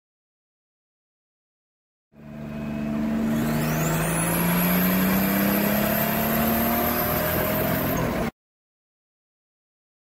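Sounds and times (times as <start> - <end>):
car engine accelerating: 2.2 - 8.3.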